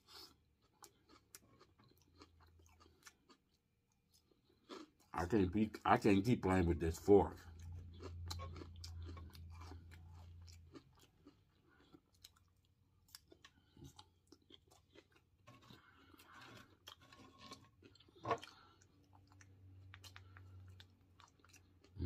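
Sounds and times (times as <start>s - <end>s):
close-up chewing with crunches: 0.0s - 22.0s.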